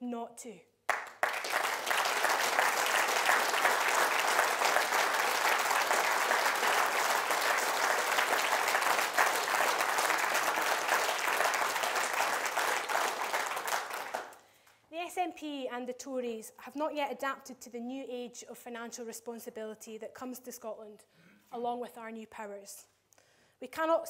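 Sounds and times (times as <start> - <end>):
audience applauding: 0.9 - 14.4.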